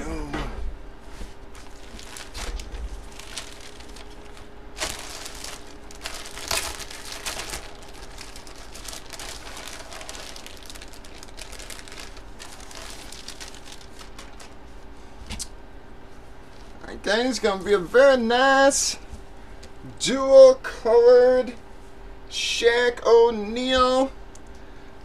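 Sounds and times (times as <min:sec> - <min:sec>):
faint steady hum: 0:00.0 - 0:25.0
plastic bag crinkling: 0:01.5 - 0:14.7.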